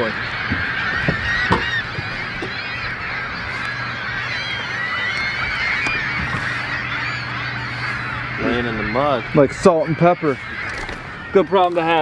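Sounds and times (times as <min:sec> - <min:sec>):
flock of water birds calling: 0:00.0 - 0:12.0
low hum: 0:00.2 - 0:11.8.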